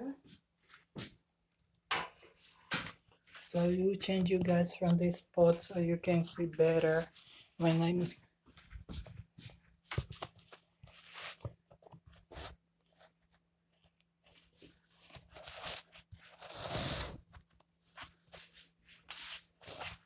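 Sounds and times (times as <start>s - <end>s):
rustling scrape: 6.8s - 11.5s, 12.1s - 13.2s, 14.2s - 20.0s.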